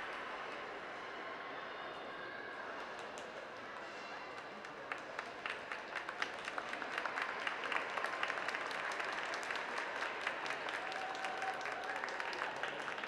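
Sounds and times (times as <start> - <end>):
audience applauding: 4.7 - 13.0.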